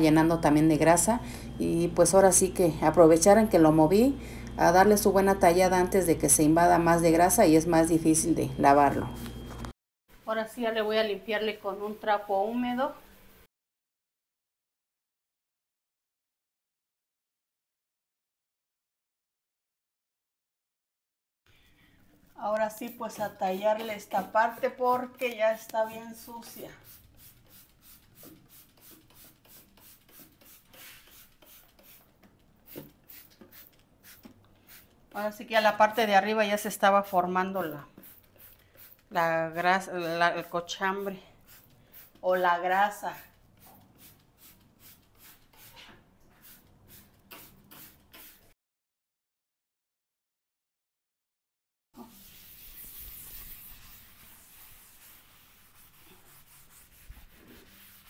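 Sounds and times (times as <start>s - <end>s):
sponge scrubbing tiles: 22.7s - 36.1s, 37.5s - 48.6s, 52.0s - 58.0s.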